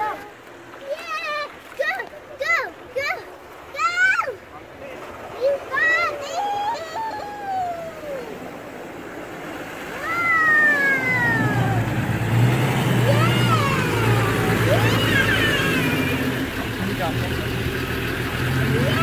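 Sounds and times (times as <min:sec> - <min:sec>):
vehicle engine running low revs: 0:07.3 - 0:19.0.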